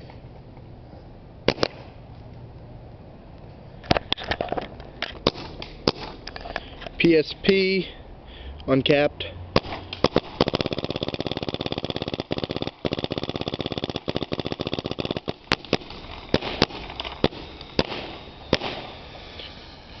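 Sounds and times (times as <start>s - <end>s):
paintball marker firing: 1.5s - 2.0s, 5.2s - 6.3s, 9.6s - 19.0s.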